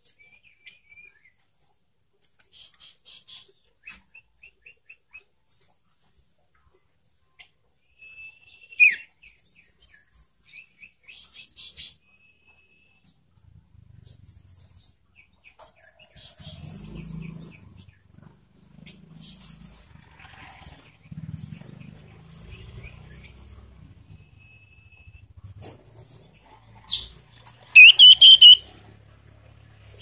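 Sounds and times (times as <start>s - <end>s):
bird chirping and whistling: 8.0s - 9.0s, 27.8s - 28.6s.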